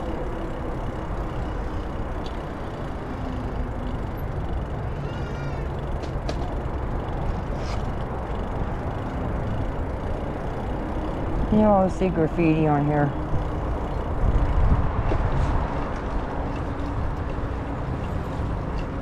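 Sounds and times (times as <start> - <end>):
bicycle rolling noise: 0.0 - 19.0
faint ticks: 2.2 - 2.5
wind rush on microphone: 13.2 - 17.6.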